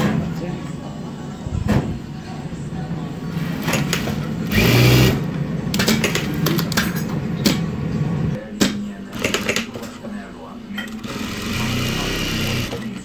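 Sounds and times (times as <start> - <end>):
sewing machine stitching: 3.5 - 5.2, 9.1 - 9.9, 10.8 - 13.0.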